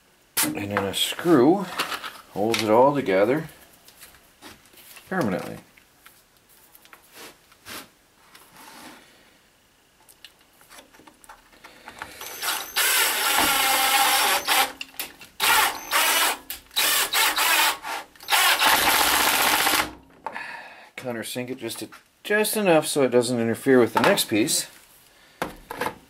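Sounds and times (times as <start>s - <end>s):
electric drill driving screw: 12.2s - 14.8s, 15.4s - 20.0s.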